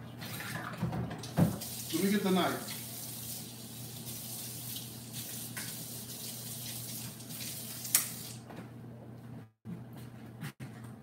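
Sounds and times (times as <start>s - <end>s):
water running from tap: 0.2s - 8.4s.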